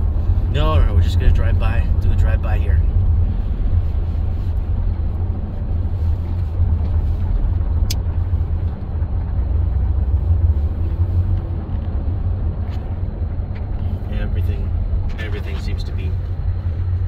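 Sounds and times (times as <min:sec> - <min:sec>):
car engine and tyre rumble: 0:00.0 - 0:17.0.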